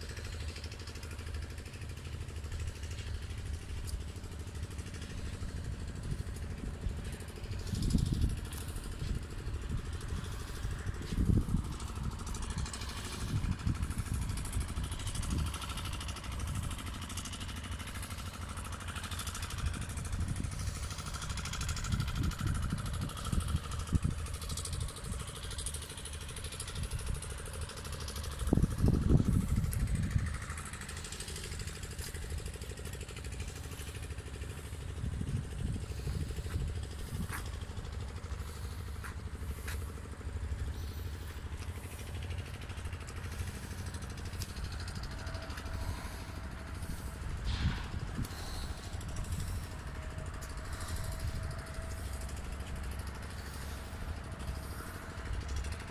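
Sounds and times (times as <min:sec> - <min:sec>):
low outdoor rumble: 0:00.0 - 0:55.9.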